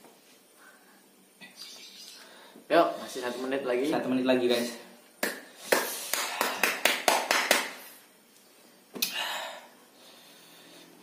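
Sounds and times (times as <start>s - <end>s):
hands clapping quickly: 5.2s - 7.9s.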